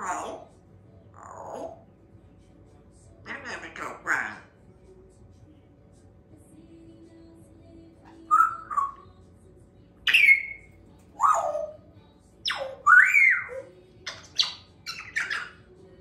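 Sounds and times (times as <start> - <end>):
parrot squawking and whistling: 8.1 - 9.0, 10.0 - 15.7.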